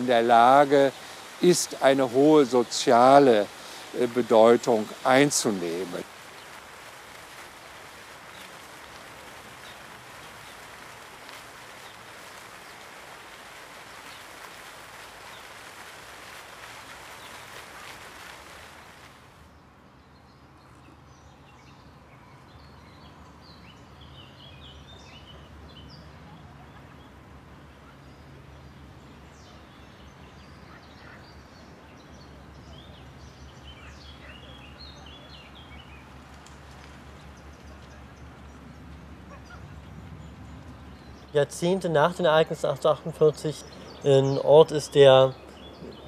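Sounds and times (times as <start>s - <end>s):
rush of broad noise: 0.0s - 19.4s
songbirds chirping: 0.0s - 46.0s.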